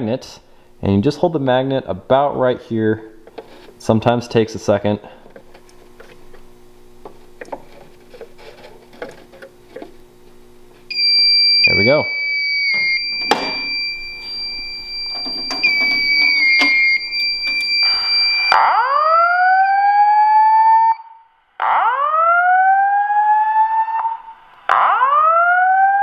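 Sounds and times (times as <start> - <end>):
high electronic alarm tone: 10.9 - 21.0
clicks: 12.7 - 18.6.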